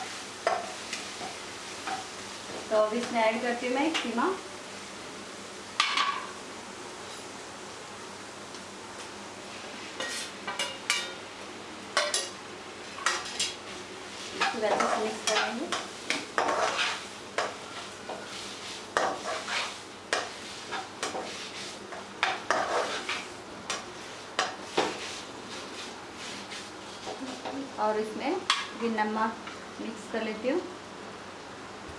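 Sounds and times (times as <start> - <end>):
meat frying in hot oil: 0.0 - 27.5
spatula scraping and tapping pan: 0.4 - 2.1, 10.0 - 11.2, 12.0 - 12.4, 13.0 - 13.6, 14.3 - 27.6.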